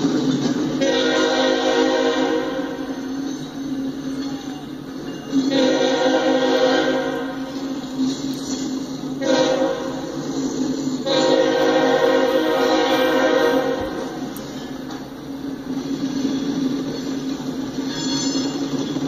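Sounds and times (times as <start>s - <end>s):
diesel locomotive engines passing: 0.0s - 19.0s
train horn blasts: 0.7s - 3.1s, 5.4s - 7.7s, 9.2s - 10.2s, 11.0s - 14.4s.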